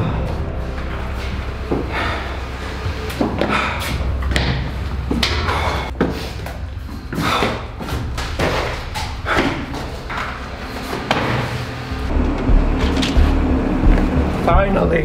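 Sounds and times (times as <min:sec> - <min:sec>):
footsteps on concrete stairs: 0:00.7 - 0:11.6.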